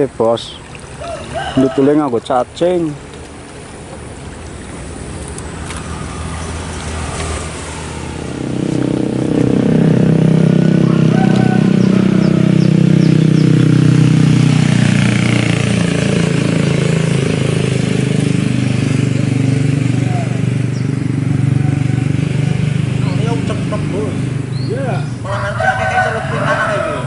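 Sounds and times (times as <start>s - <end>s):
motor engine running: 4.1s - 25.3s.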